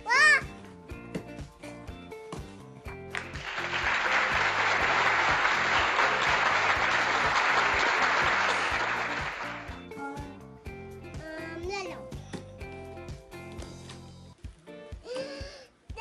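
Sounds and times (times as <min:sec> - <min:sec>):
applause: 0:03.1 - 0:09.8.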